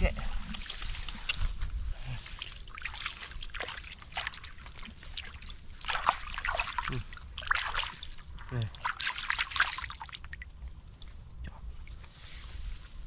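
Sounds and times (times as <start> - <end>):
hands splashing in muddy water: 0.3 - 10.5.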